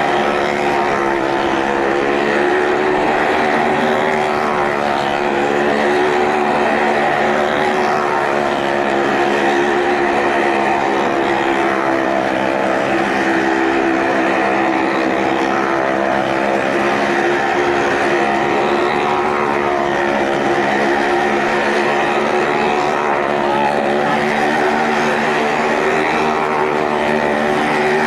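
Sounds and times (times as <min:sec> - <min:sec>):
car and motorcycle engines droning: 0:00.0 - 0:28.0.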